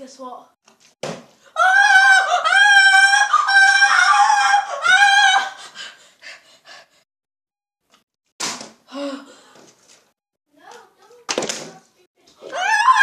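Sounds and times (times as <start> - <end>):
child's high wordless voice: 10.5 - 12.5.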